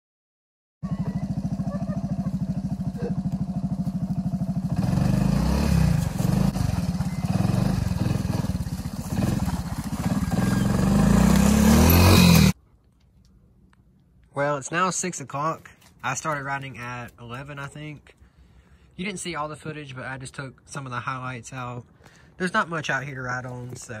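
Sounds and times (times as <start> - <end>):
small engine idling and revving: 0.8 - 12.6.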